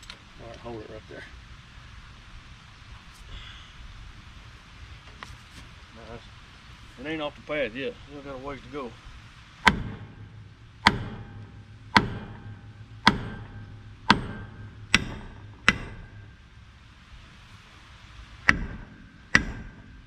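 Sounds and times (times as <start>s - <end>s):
hammer striking steel: 9.6s - 16.7s, 18.4s - 20.0s.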